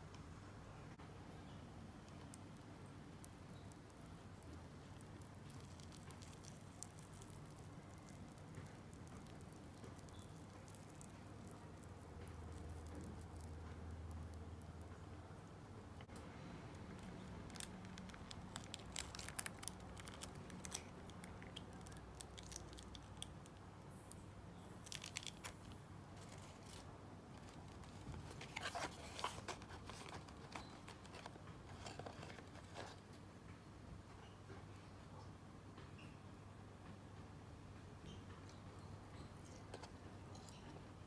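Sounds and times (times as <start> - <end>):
plastic sachet crinkling: 2.1 - 14.4, 17.0 - 23.3, 24.8 - 33.0.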